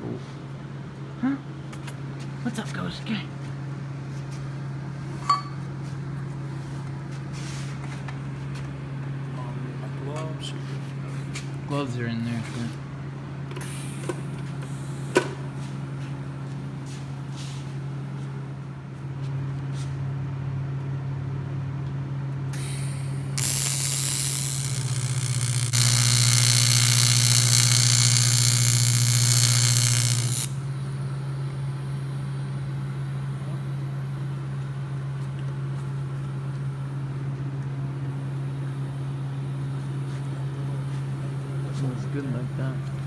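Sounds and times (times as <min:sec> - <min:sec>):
steady low hum: 0:00.0 - 0:43.0
welding arc hissing buzz: 0:22.5 - 0:30.9.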